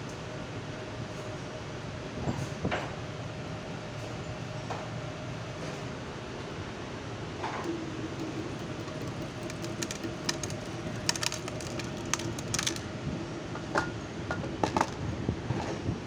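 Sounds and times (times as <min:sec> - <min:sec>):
machine motor hum: 0:07.7 - 0:13.0.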